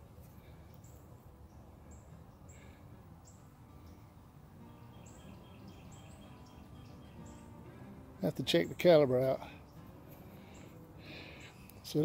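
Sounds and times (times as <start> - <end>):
outdoor background noise: 0.0 - 12.0
faint high bird chirps: 0.7 - 8.0.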